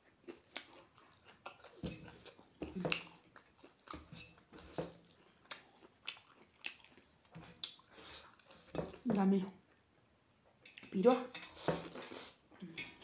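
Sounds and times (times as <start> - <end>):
person chewing with mouth smacking: 0.0 - 9.1, 10.6 - 13.0.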